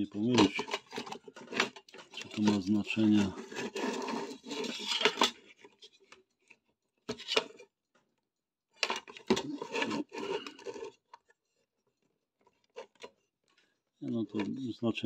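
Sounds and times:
plastic case scraping: 0.2 - 6.1, 7.1 - 7.7, 8.8 - 11.3
plastic case rubbing on wood: 2.6 - 5.2, 9.4 - 11.0.

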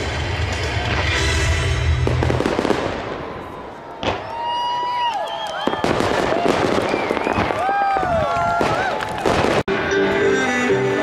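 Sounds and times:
whistling fireworks: 0.0 - 9.7
fireworks crackling: 0.0 - 9.9.

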